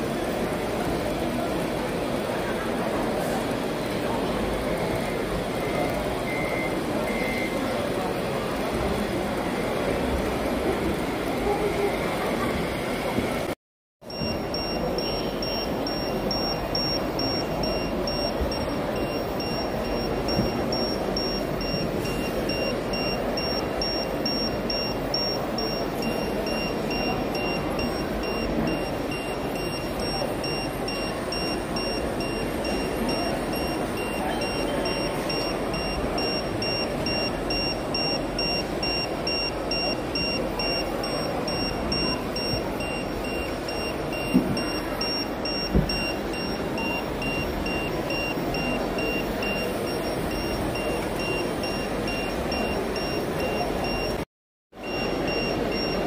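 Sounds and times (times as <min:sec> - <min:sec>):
busy hall din: 0:00.0 - 0:54.2, 0:54.8 - 0:56.0
fast high beeping: 0:14.1 - 0:54.2, 0:54.8 - 0:56.0.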